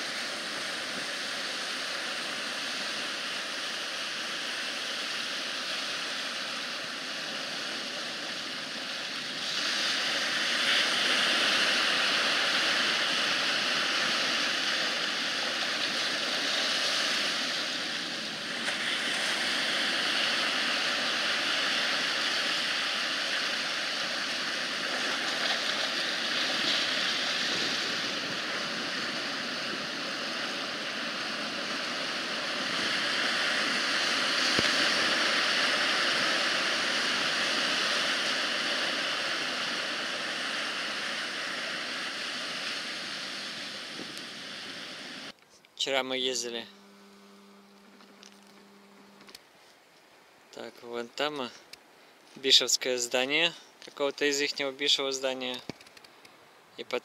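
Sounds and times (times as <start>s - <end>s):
surf breaking on rocky shore: 0.0s - 45.3s.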